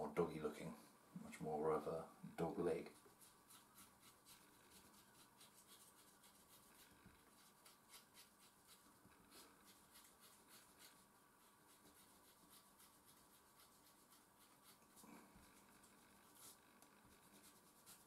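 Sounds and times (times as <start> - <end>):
eraser scrubbing on paper: 2.9 - 15.0, 17.2 - 18.0.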